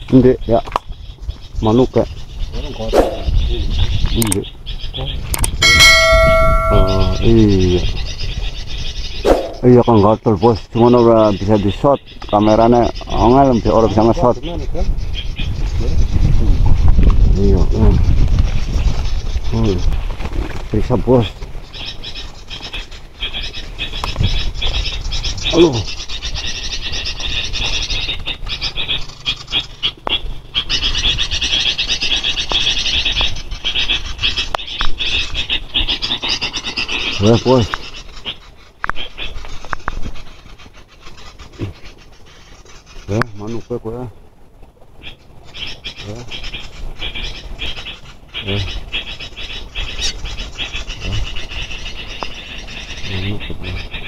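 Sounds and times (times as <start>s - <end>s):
chorus of pulsing animal calls: 0.0s - 16.2s, 18.0s - 44.2s, 44.8s - 54.0s
low animal call: 4.9s - 8.0s
high pulsing chirr: 5.6s - 7.8s
camera brushing through branches: 18.1s - 24.9s, 34.2s - 43.4s.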